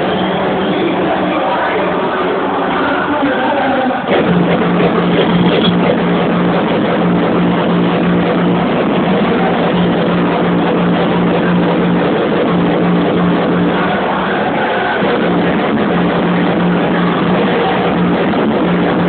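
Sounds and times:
distorted loud techno music: 0.0 - 19.0
low bass note: 4.1 - 19.0.

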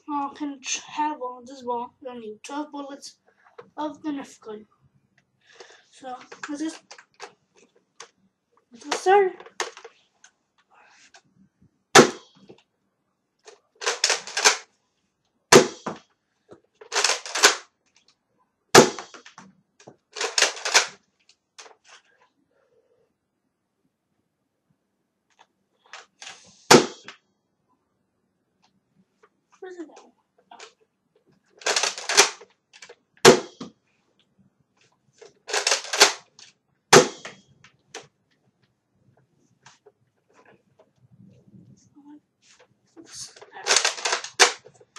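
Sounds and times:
toy blaster shot snapping: 12.0 - 12.3, 13.8 - 14.6, 15.6 - 16.0, 16.9 - 17.6, 18.8 - 19.3, 20.2 - 21.0, 26.2 - 27.1, 31.6 - 33.7, 35.5 - 36.3, 37.0 - 37.4, 43.6 - 44.6.

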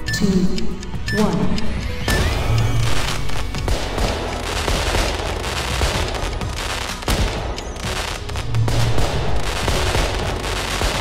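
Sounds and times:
fireworks crackling and popping: 2.4 - 11.0.

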